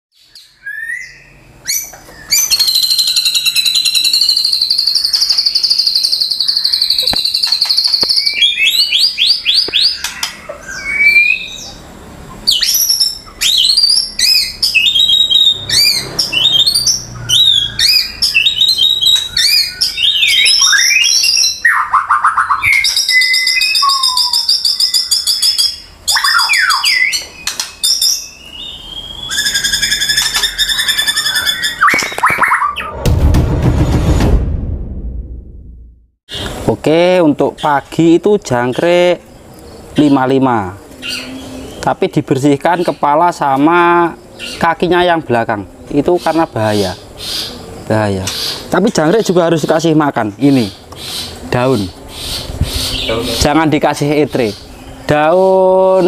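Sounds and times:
songbird singing whistles and trills: 0:00.1 - 0:32.9.

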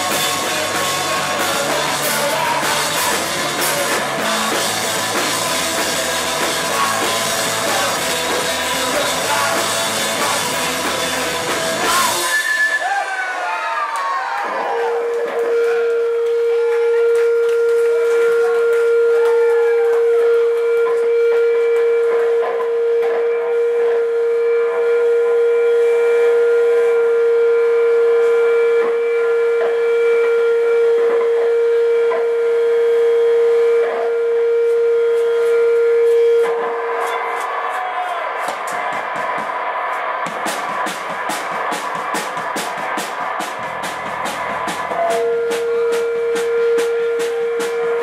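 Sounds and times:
sliding guitar tones: 0:00.0 - 0:12.6, 0:43.6 - 0:48.0
electric guitar feedback howling: 0:00.0 - 0:39.0, 0:43.6 - 0:48.0.

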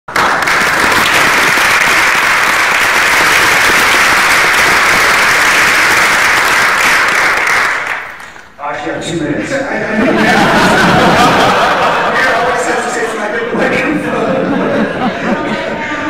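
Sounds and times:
applause: 0:00.1 - 0:08.6.

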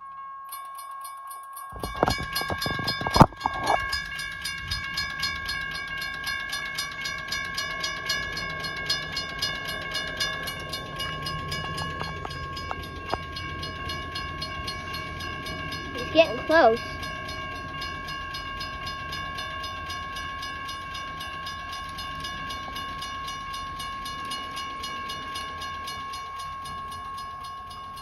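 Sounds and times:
crossing warning bell ringing: 0:00.0 - 0:28.0.

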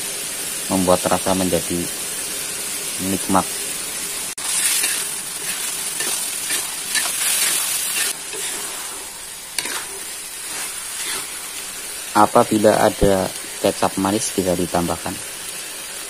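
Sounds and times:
sauce sizzling: 0:00.0 - 0:16.0
metal spatula scraping wok: 0:04.4 - 0:12.0.

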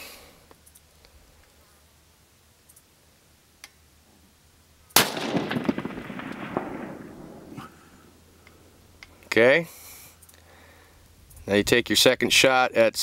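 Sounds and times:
rifle shot with rolling echo: 0:05.0 - 0:08.8.

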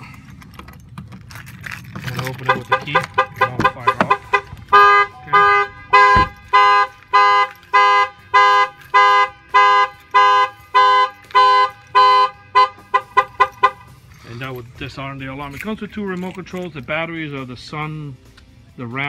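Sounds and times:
car alarm siren: 0:03.8 - 0:13.8.

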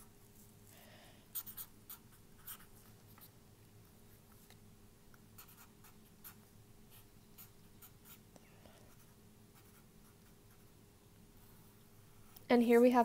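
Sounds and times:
low steady hum: 0:00.0 - 0:13.0
marker pen writing on paper: 0:01.3 - 0:03.4, 0:05.4 - 0:08.2, 0:08.9 - 0:10.7.

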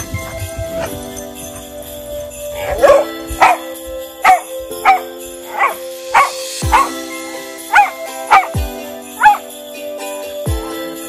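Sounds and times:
dog barking: 0:00.0 - 0:06.9, 0:07.6 - 0:08.5, 0:09.2 - 0:09.4
background music with beat: 0:00.0 - 0:11.0.

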